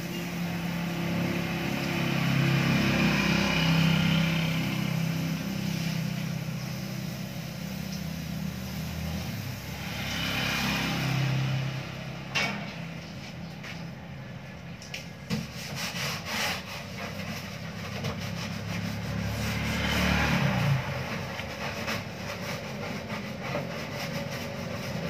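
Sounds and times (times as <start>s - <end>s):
vehicle engine hum: 0.0s - 25.0s
scrub pad rubbing fridge panel: 15.2s - 25.0s.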